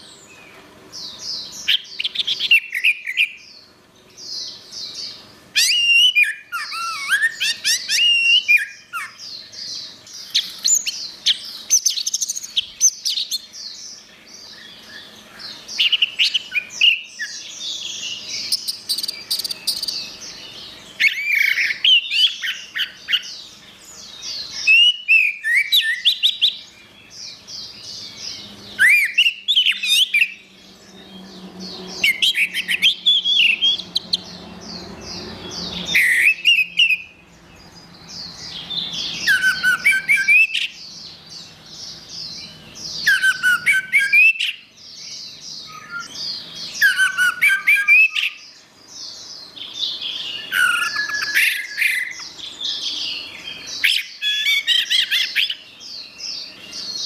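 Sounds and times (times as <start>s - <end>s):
thrush singing whistled phrases: 24.6s - 26.6s, 28.8s - 30.4s, 35.9s - 37.2s, 39.1s - 40.8s, 43.0s - 44.6s, 46.8s - 48.4s, 50.2s - 52.2s.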